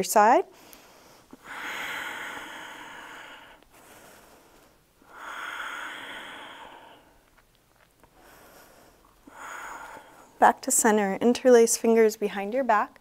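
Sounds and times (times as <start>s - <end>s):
woman breathing deeply: 0.5s - 7.2s, 8.1s - 10.4s.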